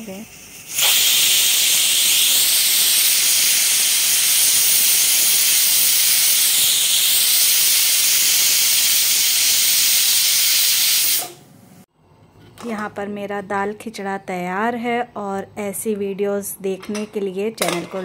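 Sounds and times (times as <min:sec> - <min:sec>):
pressure cooker steam hiss: 0:00.0 - 0:11.5.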